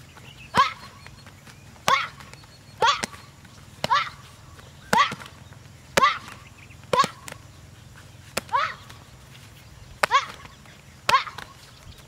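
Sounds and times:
person shouting: 3.8s - 4.3s, 4.9s - 5.3s, 6.0s - 7.3s, 8.4s - 8.9s
kicks smacking paddle target: 4.9s - 5.4s.

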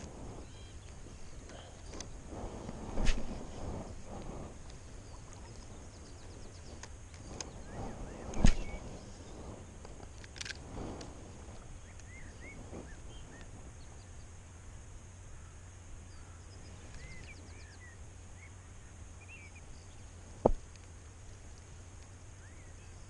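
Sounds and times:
faint bird chirps: 0.4s - 2.2s, 4.8s - 9.5s, 11.7s - 14.4s, 15.2s - 20.2s, 22.2s - 23.0s.

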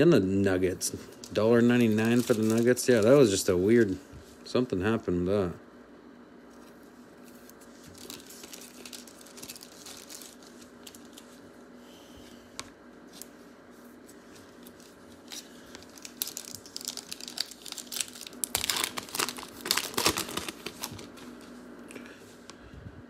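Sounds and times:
foil wrapper tearing and crinkling: 1.1s - 3.5s, 7.2s - 11.4s, 14.4s - 21.4s.

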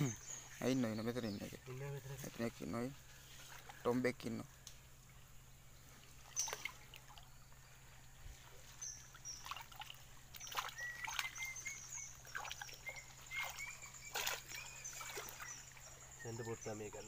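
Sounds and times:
faint chirp: 0.0s - 17.0s
water trickling and dripping: 0.0s - 17.0s
hands splashing in water: 9.4s - 11.6s, 12.3s - 15.5s.

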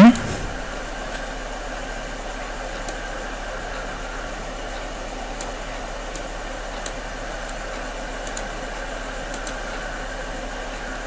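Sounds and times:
background hiss and low hum: 0.0s - 11.0s
computer mouse clicking: 5.4s - 7.6s, 8.2s - 8.5s, 9.3s - 9.6s.

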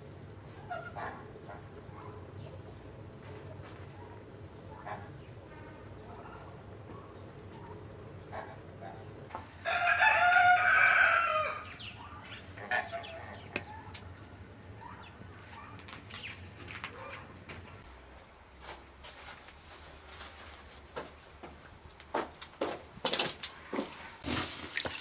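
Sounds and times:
rooster crowing: 9.6s - 11.8s.

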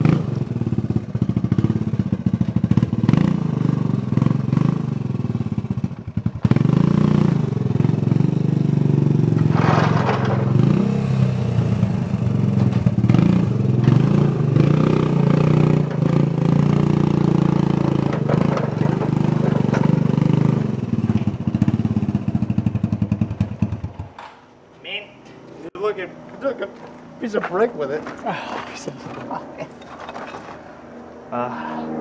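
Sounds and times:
atv engine revving: 0.0s - 29.8s
scraping clatter: 9.3s - 10.9s, 15.7s - 21.4s, 26.8s - 30.8s.

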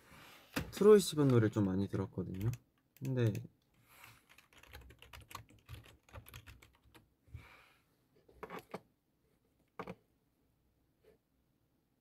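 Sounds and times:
faint keyboard typing: 1.2s - 7.1s.

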